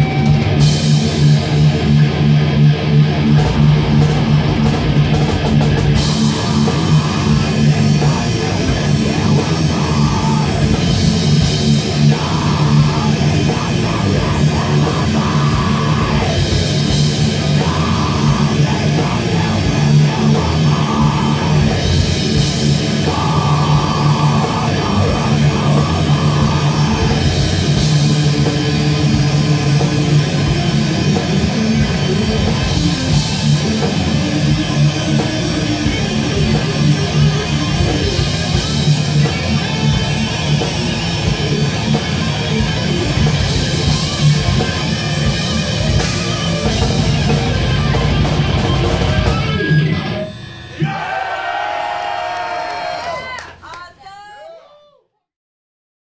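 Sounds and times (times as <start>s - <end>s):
drum kit: 0.0s - 51.1s
distorted electric guitars: 0.0s - 51.7s
bass guitar: 0.0s - 52.0s.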